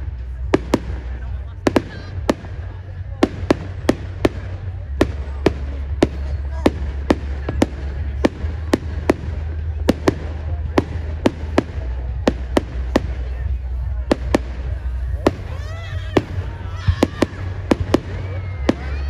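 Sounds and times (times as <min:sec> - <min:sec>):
fireworks bangs: 0:00.0 - 0:19.0
low rumble: 0:00.0 - 0:19.0.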